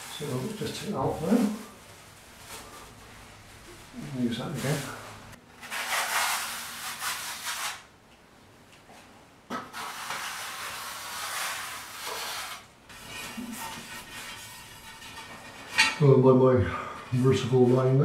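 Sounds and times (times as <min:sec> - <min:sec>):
trowel scraping adhesive on wall: 0:05.6 - 0:07.9, 0:09.5 - 0:15.8.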